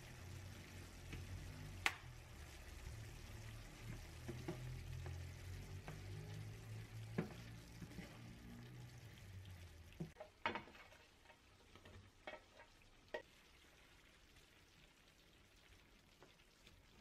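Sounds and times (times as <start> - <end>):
faint sizzle: 0.0 - 17.0
spatula scraping a pan: 7.2 - 8.4.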